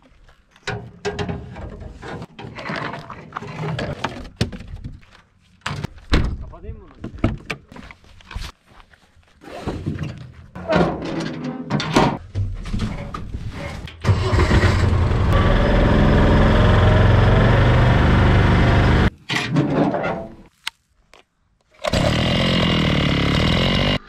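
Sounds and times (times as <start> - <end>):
utility vehicle engine running: 14.0 - 19.1.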